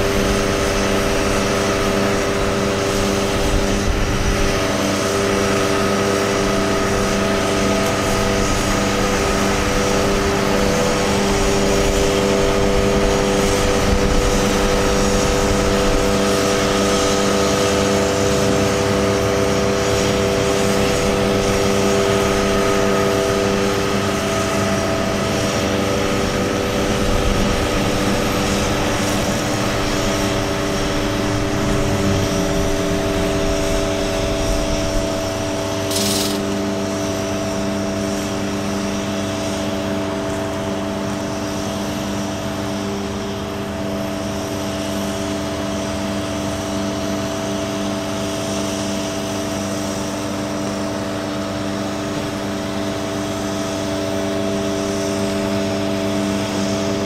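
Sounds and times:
hydraulic crane whine: 0.0s - 57.0s
truck engine running: 17.4s - 36.6s.

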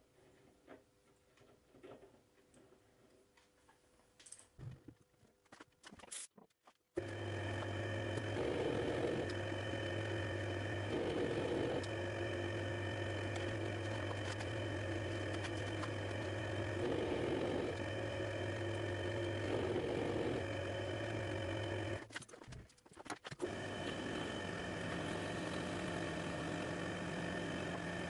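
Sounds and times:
lathe motor hum: 7.0s - 22.1s, 23.4s - 28.0s.

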